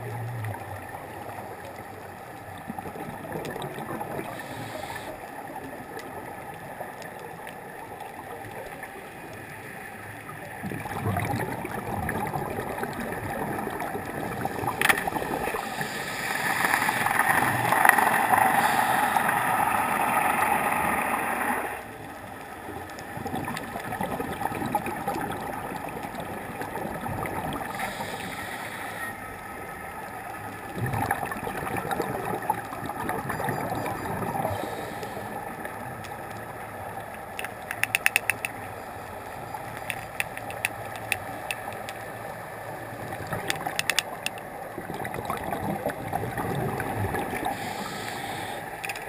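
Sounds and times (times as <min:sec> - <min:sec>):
bubbles gurgling: 0:02.6 - 0:04.6, 0:10.5 - 0:21.5, 0:23.1 - 0:28.1, 0:30.6 - 0:34.9, 0:42.8 - 0:48.0
regulator breathing: 0:34.5 - 0:35.6, 0:47.5 - 0:48.9
sharp click: 0:37.4 - 0:38.6.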